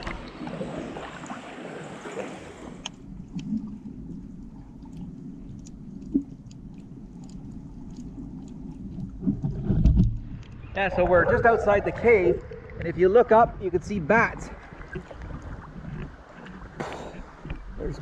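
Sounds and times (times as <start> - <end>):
water sloshing and splashing: 0.0 - 13.4, 14.2 - 18.0
muffled underwater rumble: 0.0 - 18.0
faint clicks: 2.8 - 10.8.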